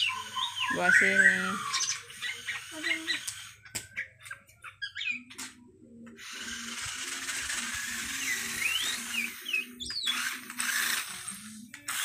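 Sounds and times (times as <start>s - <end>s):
toy car motor whirring: 0.0s - 4.0s, 6.2s - 12.0s.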